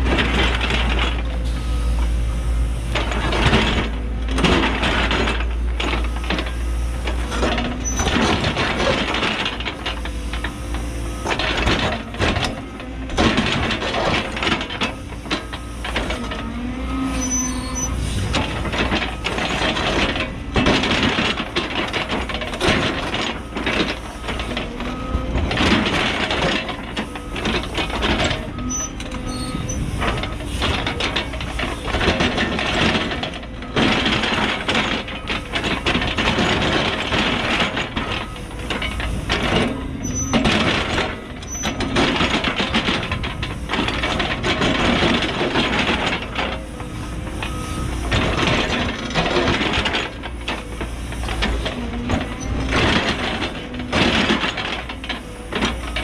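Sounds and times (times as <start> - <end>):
excavator diesel engine: 0.0 - 56.0
steel squealing on rock: 17.2 - 18.3, 28.7 - 29.9.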